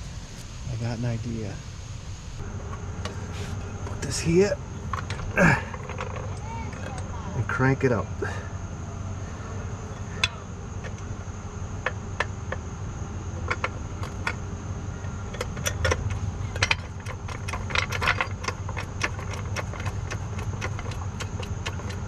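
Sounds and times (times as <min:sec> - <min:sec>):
steady low hum: 0:00.0 - 0:22.0
floor jack clicks and clanks: 0:15.4 - 0:22.0.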